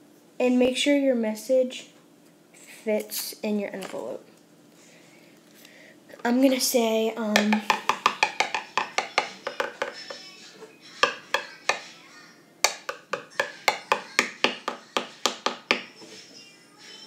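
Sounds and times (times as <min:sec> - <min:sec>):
pencil tapping on tabletop: 0:07.4 - 0:10.2, 0:11.0 - 0:11.8, 0:12.6 - 0:15.9.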